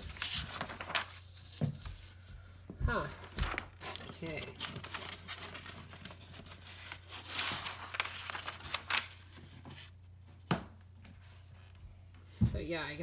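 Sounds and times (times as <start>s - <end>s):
paper pages rustling: 0.0s - 2.3s, 2.9s - 10.1s.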